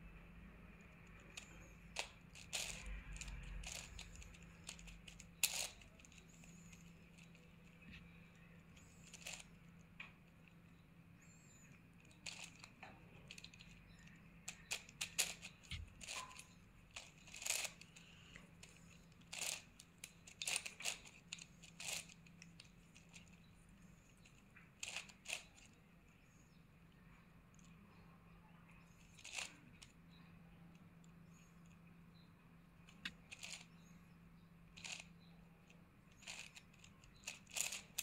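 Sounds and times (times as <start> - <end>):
puzzle cube clacking and clicking: 1.1 - 8.1, 8.7 - 9.6, 12.0 - 23.4, 24.8 - 25.8, 29.1 - 30.0, 32.9 - 33.7, 34.8 - 35.1, 36.2 - 38.0.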